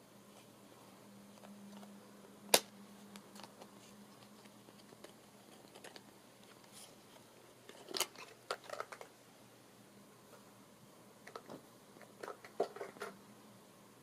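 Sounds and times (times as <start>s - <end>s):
plastic clicks and scrapes: 3.2s - 6.9s, 7.7s - 9.1s.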